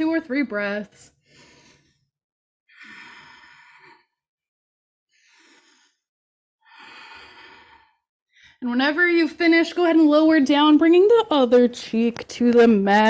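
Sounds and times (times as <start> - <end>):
woman breathing: 1.1 - 4.2, 5.1 - 8.6.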